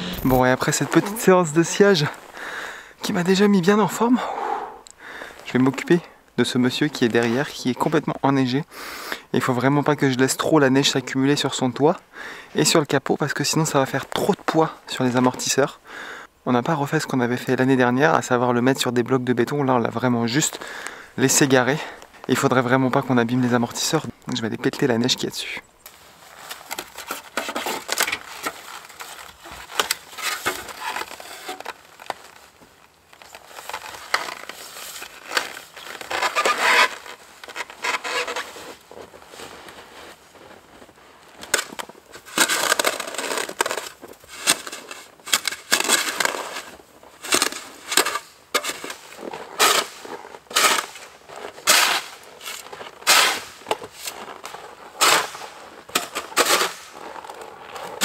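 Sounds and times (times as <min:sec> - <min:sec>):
snow shovel scraping snow: 0:00.0 - 0:01.3, 0:33.2 - 0:58.0.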